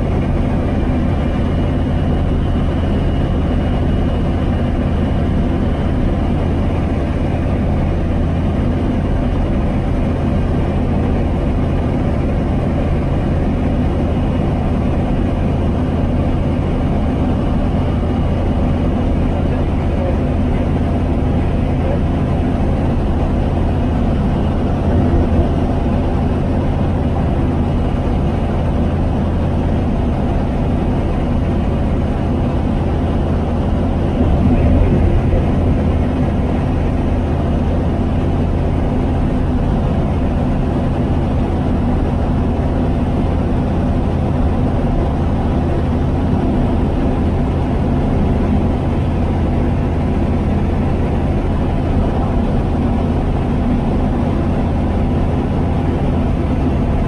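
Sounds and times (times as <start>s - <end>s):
aircraft engine running: 0.0s - 57.0s
wind noise over airframe: 0.0s - 57.0s.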